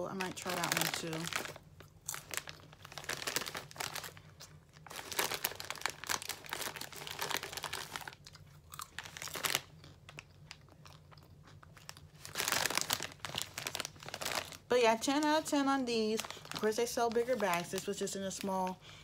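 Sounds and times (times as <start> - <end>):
person chewing popcorn: 1.3 - 14.6.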